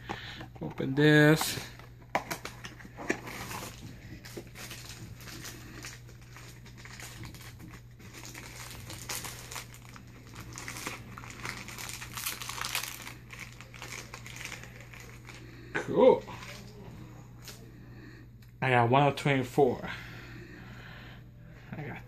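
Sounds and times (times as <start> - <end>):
packaging crinkling and rustling: 0.5 - 15.5.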